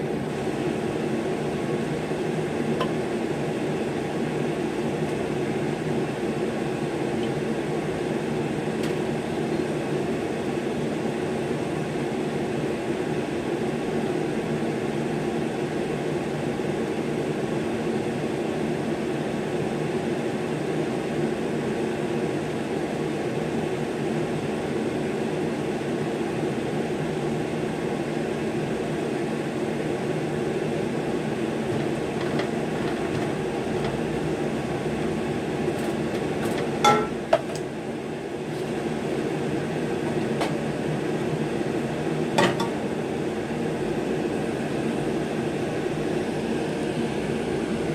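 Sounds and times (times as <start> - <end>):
machine droning: 30.6 - 47.9.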